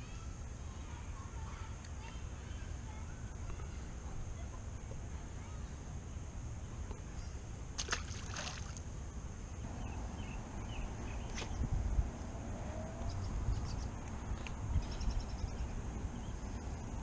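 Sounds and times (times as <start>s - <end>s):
fish splashing into water: 7.8s - 8.8s
wind on microphone: 10.7s - 16.2s.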